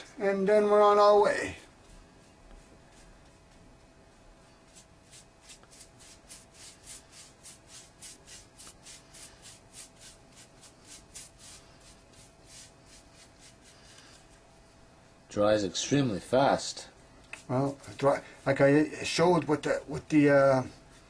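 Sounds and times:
brush strokes on stick blade: 1.3 - 3.7, 4.4 - 14.5, 17.3 - 21.0.

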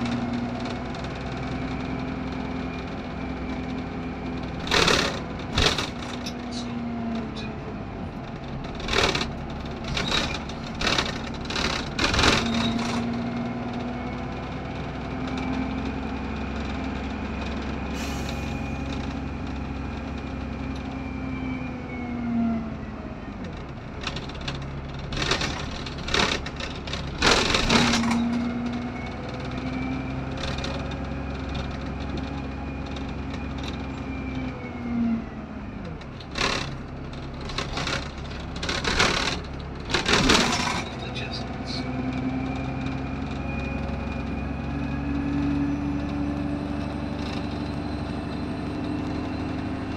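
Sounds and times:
bus engine drone with whine: 0.0 - 49.9
knocks and rattles: 3.6 - 7.5, 8.2 - 14.0, 23.5 - 34.0, 35.9 - 41.1.

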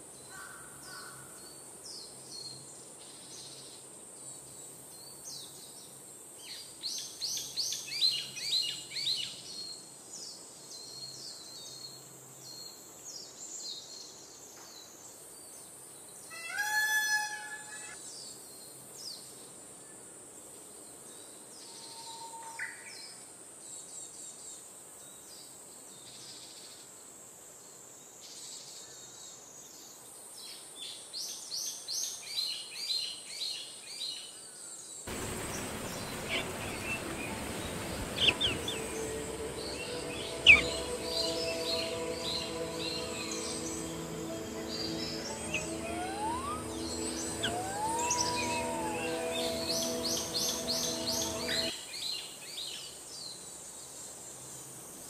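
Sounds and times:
steady high hiss: 35.1 - 52.2
rapid high chirping bird trills: 35.4 - 51.7.

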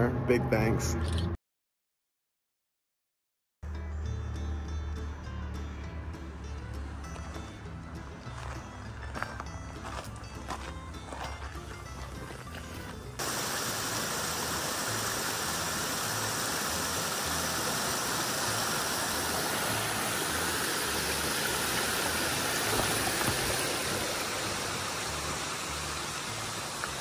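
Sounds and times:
stream running over rocks: 8.4 - 27.0.

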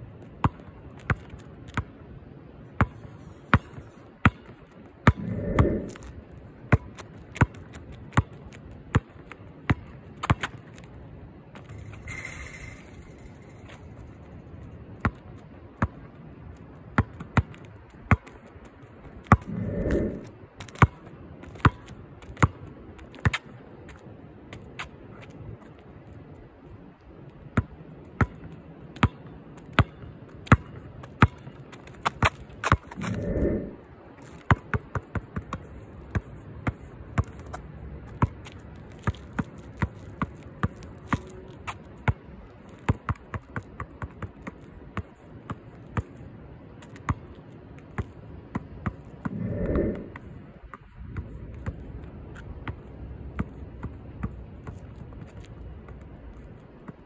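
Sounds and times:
longer low sound: 5.2 - 6.0, 19.4 - 20.4, 33.0 - 33.9, 49.3 - 50.2
basketball bouncing on hard court: 52.6 - 54.9.

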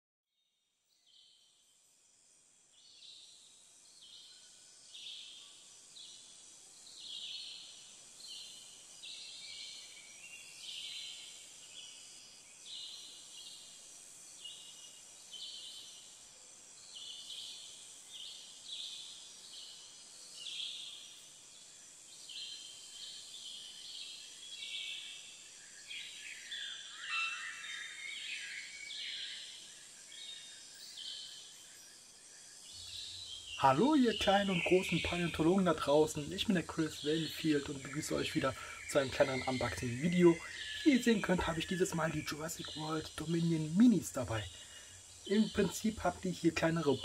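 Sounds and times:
insects chirping: 0.8 - 47.0
birds chirping: 32.7 - 47.0.

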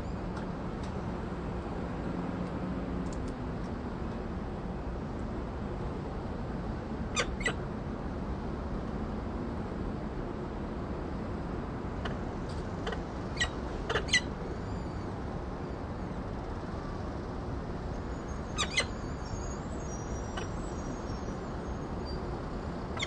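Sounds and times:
falcon high chirps: 18.6 - 19.0.

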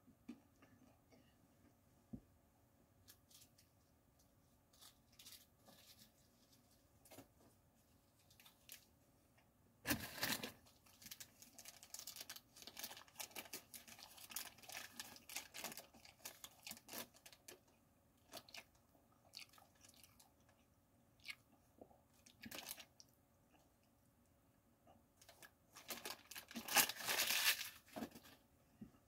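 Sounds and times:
paper wrapper crinkling: 4.7 - 7.2, 9.9 - 18.7, 22.3 - 22.9, 25.2 - 28.4.

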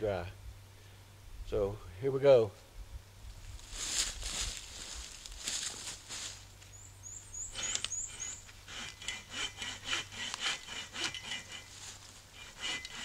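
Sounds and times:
hand saw rasping through wood: 7.4 - 13.0.

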